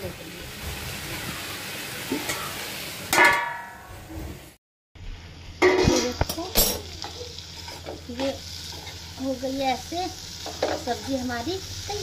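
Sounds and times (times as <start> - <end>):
vegetables sizzling in oil: 0.0 - 12.0
lid and spatula clattering: 3.1 - 3.9
metal lid clanging on pan: 3.1 - 3.9, 5.6 - 6.9.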